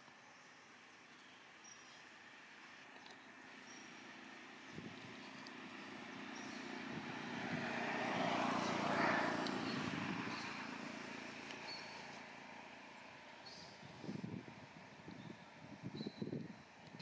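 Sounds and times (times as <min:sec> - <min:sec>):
vehicle passing by: 0:03.4 - 0:14.5.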